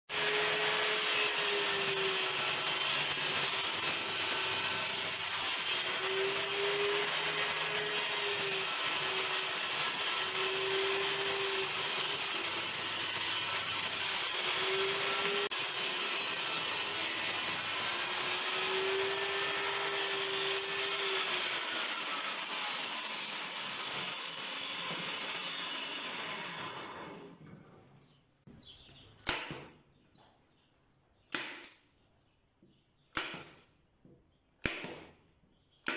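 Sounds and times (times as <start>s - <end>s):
table saw cutting wood: 0.1s - 27.5s.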